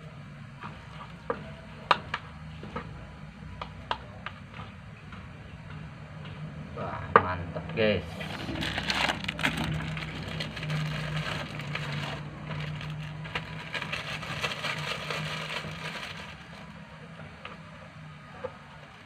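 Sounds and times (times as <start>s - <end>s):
plastic bag crinkling: 8.2s - 16.8s.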